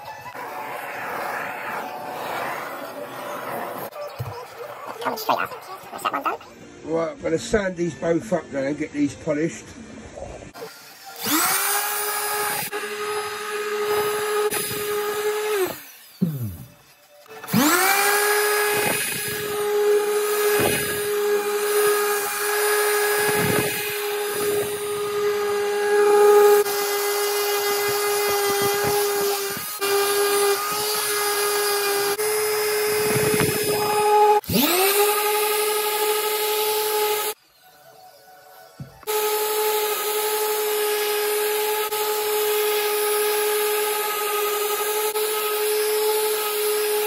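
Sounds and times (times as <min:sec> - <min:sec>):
orbital sander humming: 0:17.3 - 0:37.4, 0:39.0 - 0:47.0.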